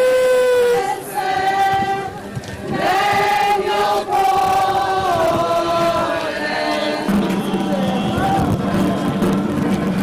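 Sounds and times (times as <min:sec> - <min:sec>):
group singing a hymn: 0:00.6 - 0:08.1.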